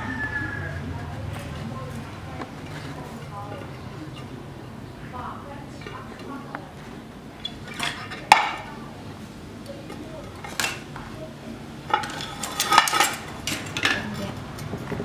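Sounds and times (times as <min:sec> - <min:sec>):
ceramic plates clinking: 0:07.4 - 0:08.8, 0:09.9 - 0:10.9, 0:11.9 - 0:14.7.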